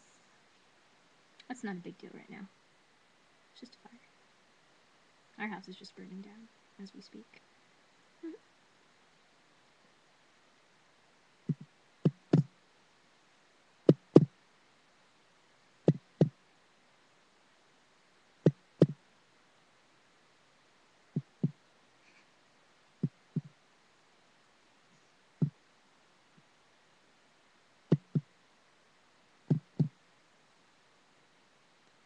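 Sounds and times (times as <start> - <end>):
low thumps in pairs: 11.5 - 12.5, 18.5 - 19.0, 27.9 - 28.3, 29.5 - 30.0.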